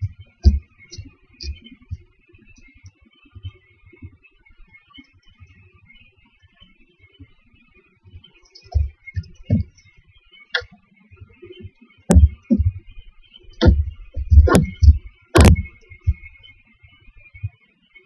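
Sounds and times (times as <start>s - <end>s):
owlets thumping in wooden box: 12.1s - 12.8s, 13.6s - 16.2s.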